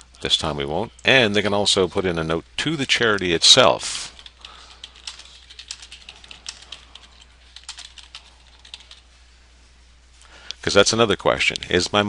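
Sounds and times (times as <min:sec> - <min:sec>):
keyboard typing clicks: 0:04.2 - 0:09.0.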